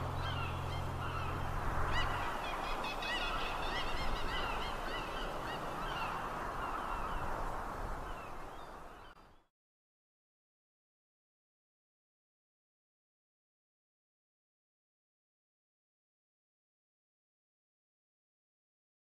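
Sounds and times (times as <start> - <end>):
flock of birds calling: 0.0 - 7.4.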